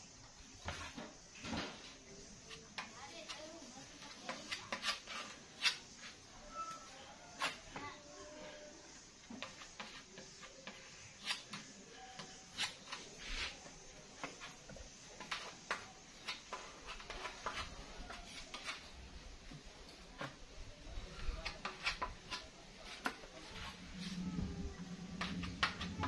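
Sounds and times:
scraper scraping wood: 4.0 - 6.1, 12.2 - 18.9.

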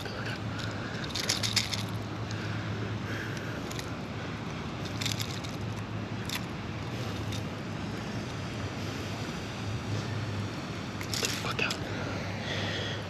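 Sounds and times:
fishing hooks crackling clicks: 0.0 - 2.4, 4.8 - 6.5, 11.0 - 11.8
low background hum: 0.0 - 13.0.

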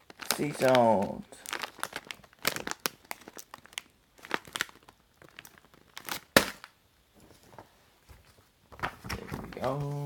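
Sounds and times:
snack bag crinkling: 0.0 - 6.7.

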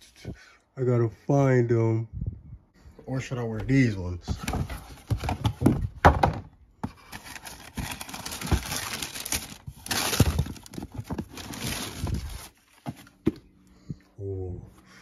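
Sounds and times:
tissue paper rustling: 7.0 - 12.8.

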